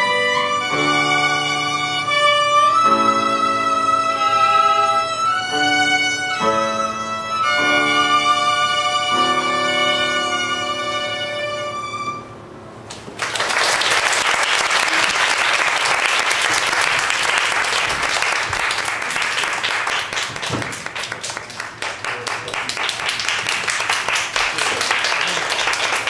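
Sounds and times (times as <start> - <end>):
audience applause: 12.9 - 26.0.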